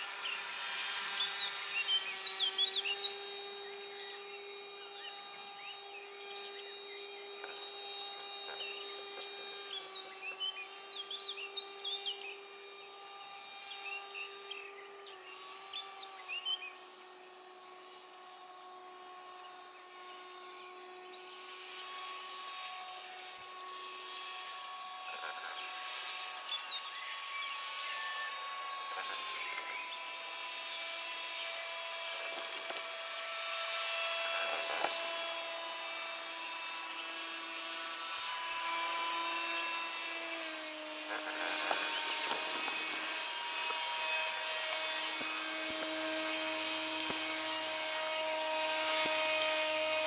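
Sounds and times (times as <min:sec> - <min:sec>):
model aircraft motor whine: 0:00.0 - 0:50.0.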